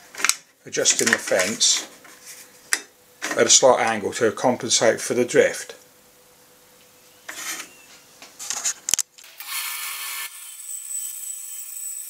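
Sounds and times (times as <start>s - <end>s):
bandsaw whining: 9.2s - 12.0s.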